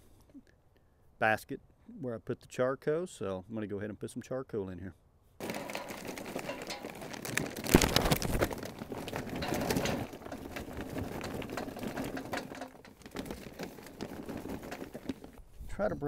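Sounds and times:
charcoal clattering into metal basket: 5.4s - 15.4s.

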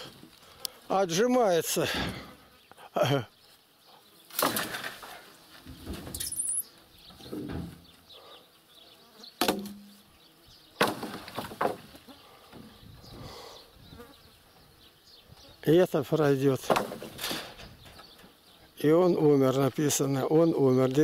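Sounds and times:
wooden poles thudding and clattering: 1.9s - 2.4s, 4.3s - 8.0s, 9.4s - 10.1s, 10.8s - 12.9s, 16.5s - 18.4s.

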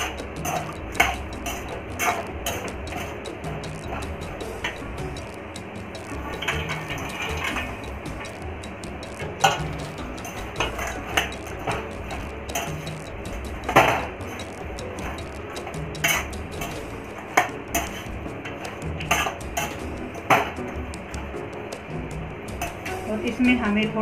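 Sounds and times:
metal spoon scraping a pan: 0.0s - 4.8s, 6.2s - 7.9s, 9.4s - 21.3s.

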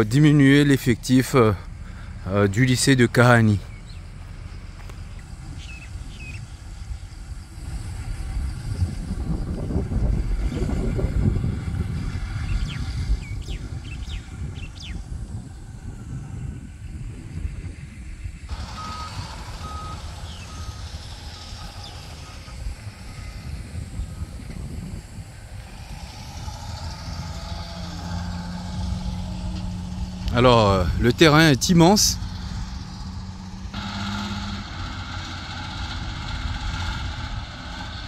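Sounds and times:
steady low rumble: 0.0s - 18.7s, 19.3s - 33.8s
reversing alarm beeps: 18.7s - 21.6s.

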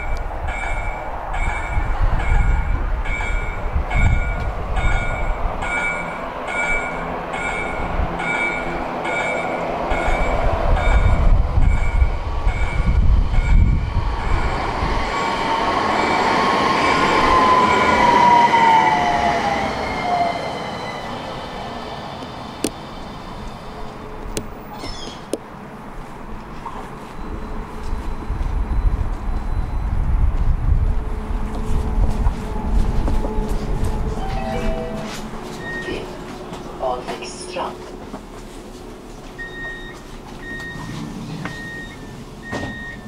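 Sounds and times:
tram wheel squeal: 0.0s - 25.3s, 26.5s - 36.9s, 39.4s - 43.0s
tram rumbling: 0.0s - 43.0s
electronic warning bell chiming: 3.1s - 12.9s, 34.2s - 36.2s.

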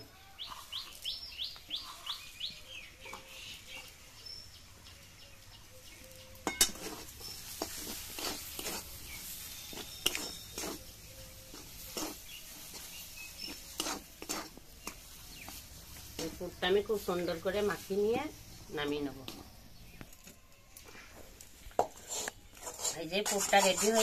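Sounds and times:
bird chirping: 0.0s - 13.8s, 14.6s - 21.3s
metal spatula scraping a wok: 0.4s - 4.1s, 6.4s - 18.6s, 21.0s - 24.0s.

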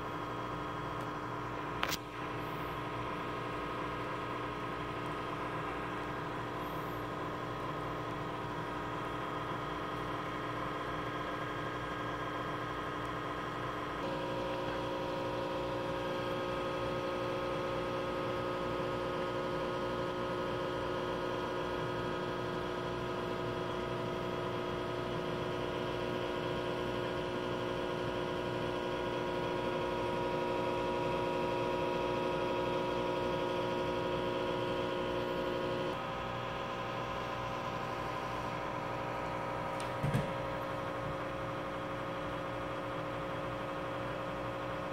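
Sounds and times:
aquarium filter pumps humming: 0.0s - 44.9s.

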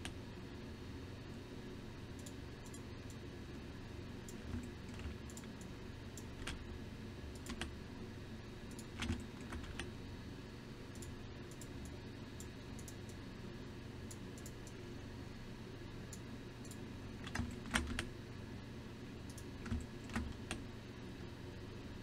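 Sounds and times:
keyboard and mouse clicks: 4.2s - 6.6s, 7.3s - 7.7s, 8.7s - 9.9s, 16.1s - 18.1s, 19.3s - 20.6s.

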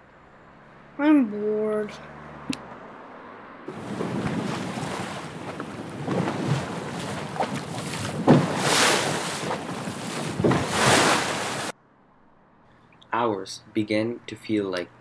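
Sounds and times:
wind: 0.0s - 15.0s
ocean waves: 3.7s - 11.7s.

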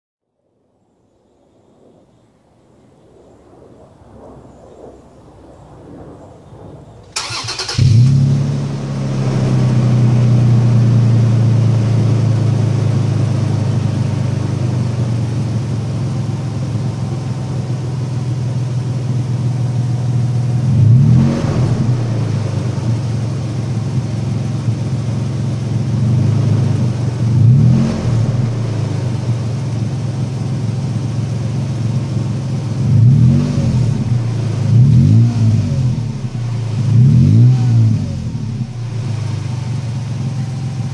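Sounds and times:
engine starter cranking: 7.2s - 8.2s
truck engine idling and revving: 7.2s - 40.9s.

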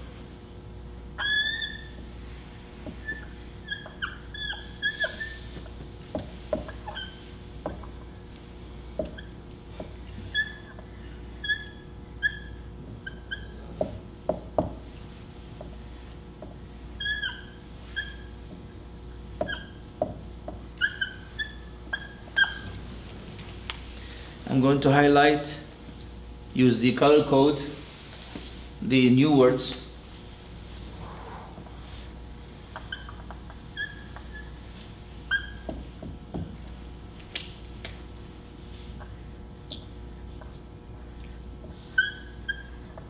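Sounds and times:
marker squeaking on a whiteboard: 1.1s - 8.2s, 8.9s - 22.9s, 31.5s - 36.7s, 38.8s - 43.0s.

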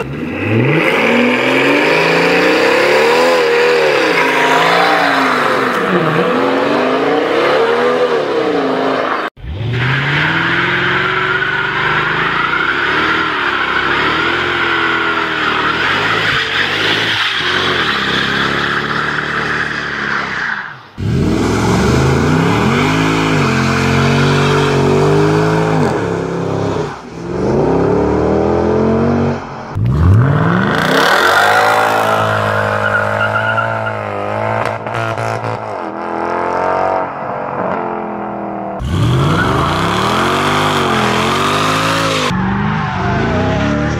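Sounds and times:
car engine revving: 0.0s - 20.2s, 21.0s - 43.9s
tyre squeal: 31.1s - 34.2s.

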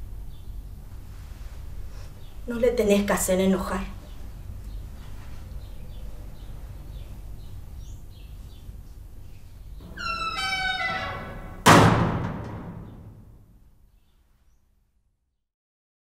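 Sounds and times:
heavy boom: 11.6s - 13.4s.

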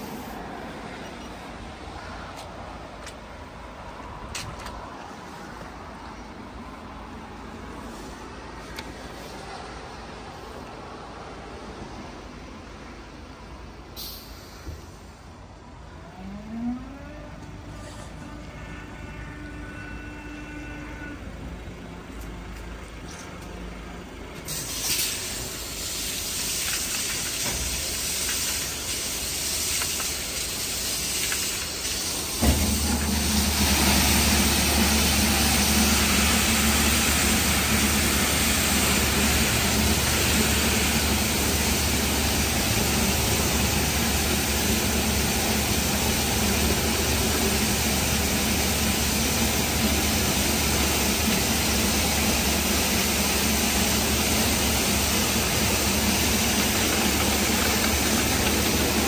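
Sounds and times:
water spray hissing: 24.5s - 59.0s
pump motor humming: 32.4s - 59.0s.

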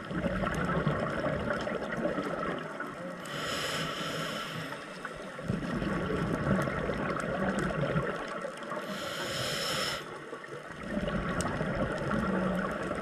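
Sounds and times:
exhaled bubbles gurgling underwater: 0.0s - 13.0s
regulator inhalation hiss: 3.2s - 5.1s, 8.8s - 10.2s.

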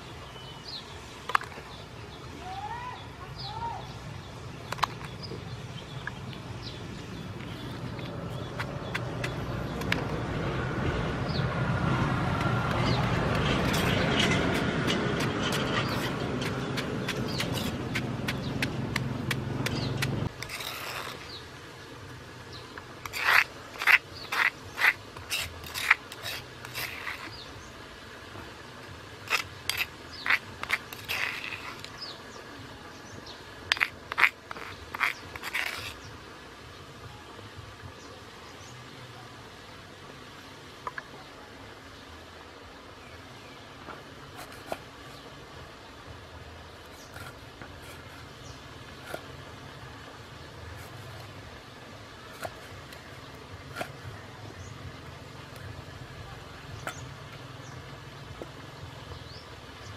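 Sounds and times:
pestle grinding in stone mortar: 7.2s - 21.4s, 23.0s - 27.4s, 29.2s - 32.2s, 33.6s - 36.1s.

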